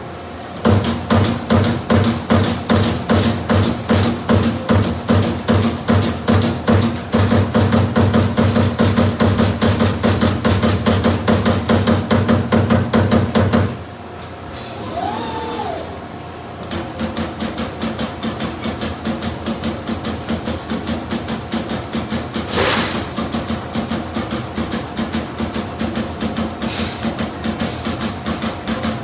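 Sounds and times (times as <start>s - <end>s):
punch press punching sheet steel: 0.6s - 13.8s, 16.7s - 29.0s.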